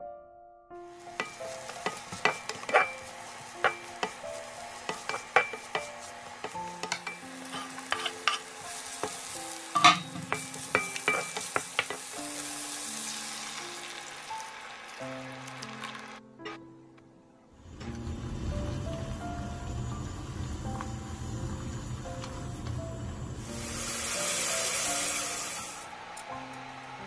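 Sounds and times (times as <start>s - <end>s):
garlic and mushrooms sizzling: 0.9s - 16.2s, 17.6s - 26.6s
wooden spatula knocking on pan: 1.1s - 8.4s, 9.0s - 12.1s.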